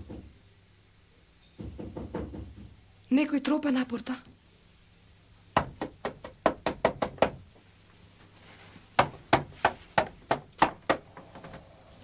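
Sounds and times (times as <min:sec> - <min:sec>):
knocking on wooden gate: 0:01.6 - 0:02.8, 0:05.6 - 0:07.5, 0:09.0 - 0:11.6.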